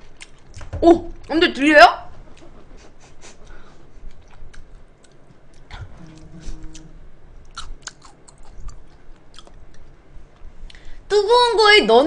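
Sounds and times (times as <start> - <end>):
crunchy food being chewed: 4.0 - 10.5.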